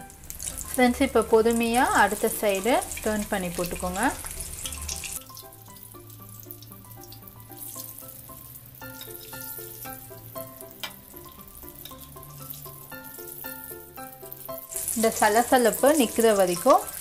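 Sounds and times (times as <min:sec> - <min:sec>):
background music melody: 0:00.0 - 0:17.0
oil sizzling in deep frying: 0:00.0 - 0:17.0.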